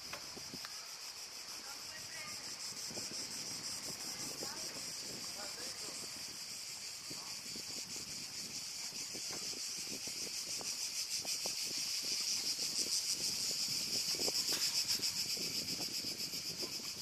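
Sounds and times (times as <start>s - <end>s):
insect chorus: 0.0s - 17.0s.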